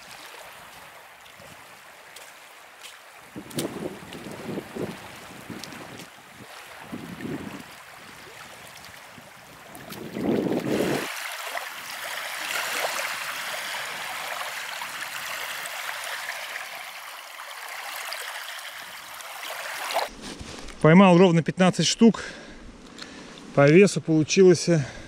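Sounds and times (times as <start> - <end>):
water rushing and trickling: 0.0 - 20.2
wind buffeting microphone: 3.3 - 11.2.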